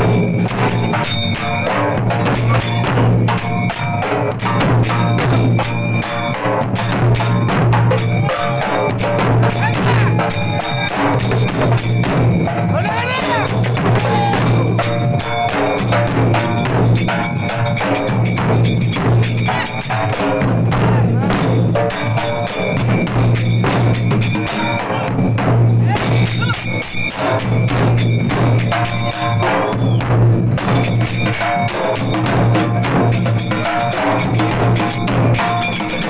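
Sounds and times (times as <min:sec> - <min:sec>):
barrel drums beating: 0:00.0 - 0:36.0.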